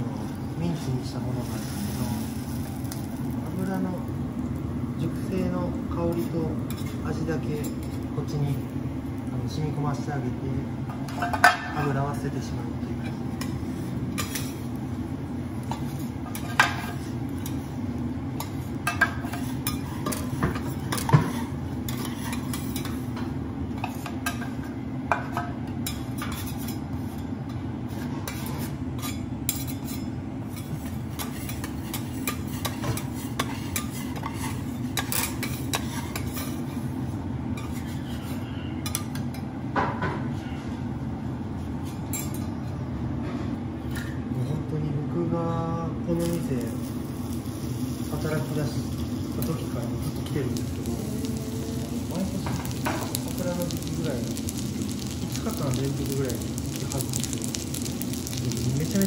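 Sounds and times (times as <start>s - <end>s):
steady low hum: 0.0s - 59.0s
metal spatula scraping griddle: 27.9s - 36.8s.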